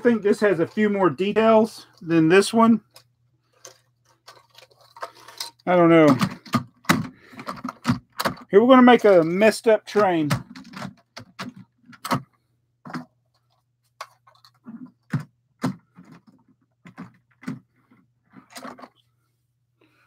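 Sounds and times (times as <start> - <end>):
plastic toy train parts clacking: 2.8 - 9.4, 12.9 - 15.2.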